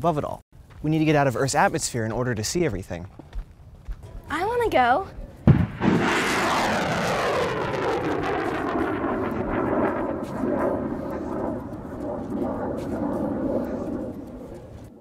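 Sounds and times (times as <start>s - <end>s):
rocket launch roar: 5.4s - 14.6s.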